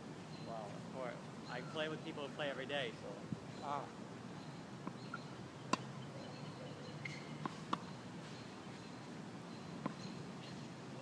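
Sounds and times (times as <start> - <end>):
tennis ball hit and bouncing: 5.7 - 5.9, 7.0 - 7.9, 9.8 - 10.1.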